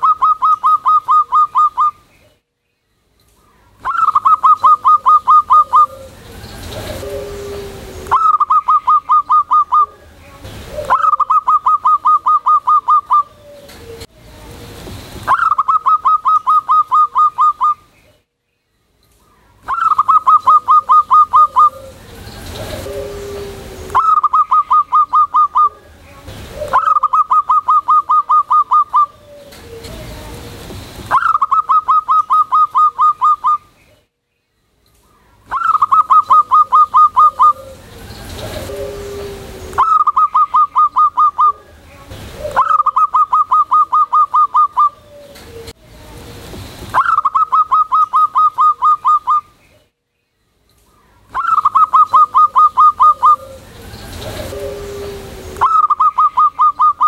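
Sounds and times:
dove cooing: 0.0 - 2.0, 3.8 - 14.1, 15.3 - 17.8, 19.6 - 33.7, 35.5 - 49.5, 51.3 - 57.0.

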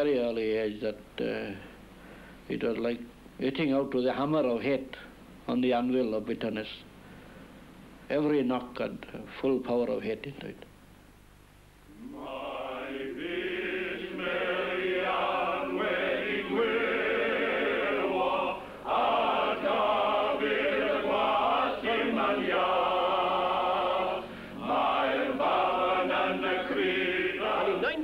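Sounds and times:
choir singing: 11.9 - 28.0.

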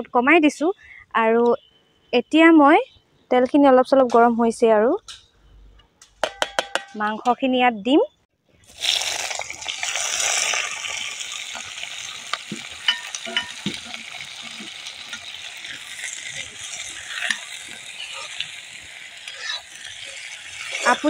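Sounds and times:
chicken frying in hot oil: 8.6 - 21.0
ladle clinking and scraping pan: 12.7 - 15.3.

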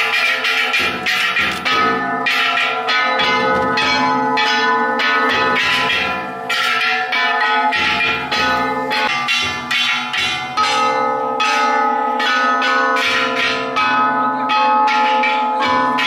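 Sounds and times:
bronze gongs clanging: 0.0 - 16.0
taiko drum beats: 0.1 - 4.4, 7.6 - 10.9.

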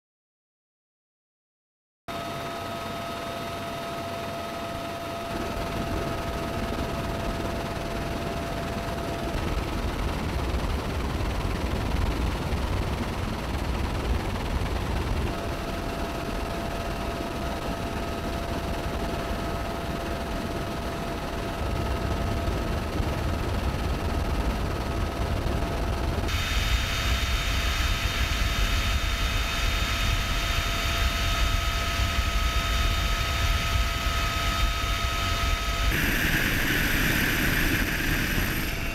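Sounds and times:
helicopter rotor and turbine noise: 2.1 - 38.9.

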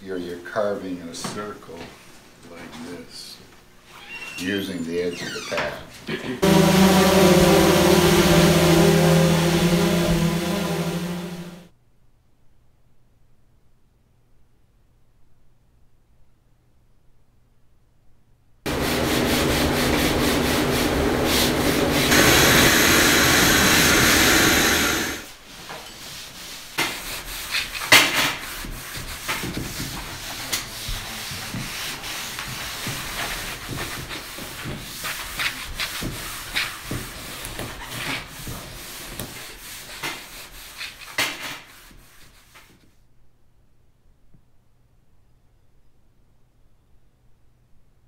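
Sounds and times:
rag rubbing wooden hull: 6.4 - 11.7, 18.7 - 42.8
vacuum cleaner running: 6.4 - 11.7, 18.7 - 25.4.

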